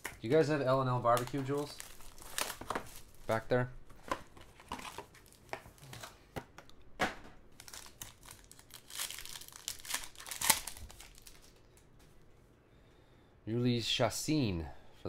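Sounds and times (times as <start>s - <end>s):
foil wrapper crinkling and tearing: 1.0s - 3.2s, 7.6s - 11.6s.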